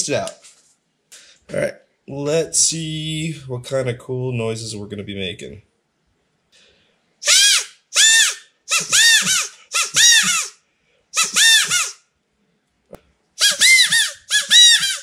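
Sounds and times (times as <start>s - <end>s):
squeaky bird call whistle: 7.2s - 10.6s, 11.2s - 12.0s, 13.4s - 15.0s.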